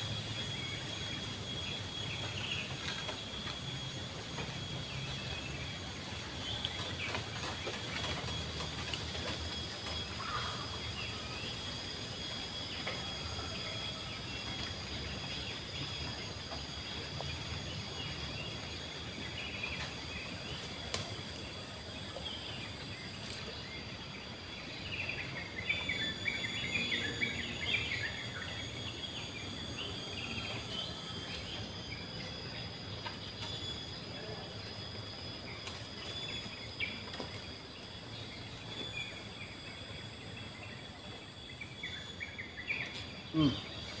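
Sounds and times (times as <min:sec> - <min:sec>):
high insect drones: 0:00.0 - 0:44.0.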